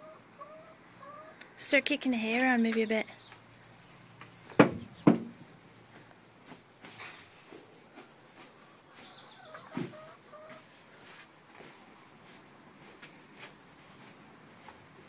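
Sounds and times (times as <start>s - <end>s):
thump: 4.6s - 5.3s.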